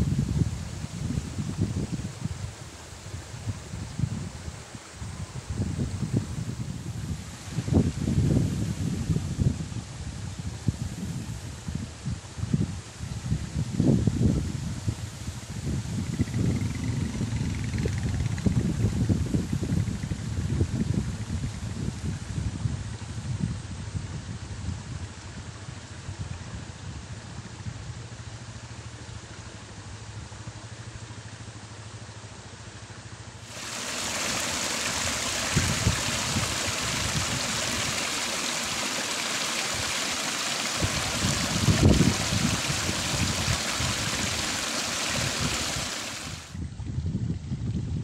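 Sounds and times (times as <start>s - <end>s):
water gushing from a pipe: 33.5s - 46.6s.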